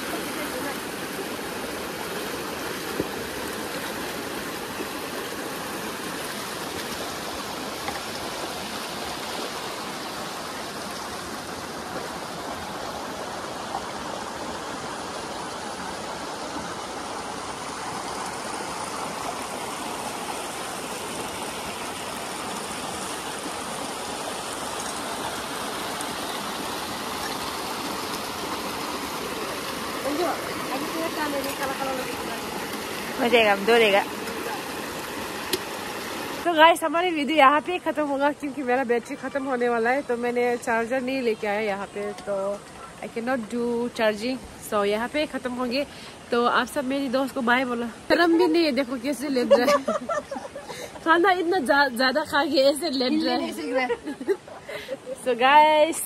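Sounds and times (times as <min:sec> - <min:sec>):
water pouring into stream: 0:17.0 - 0:36.5.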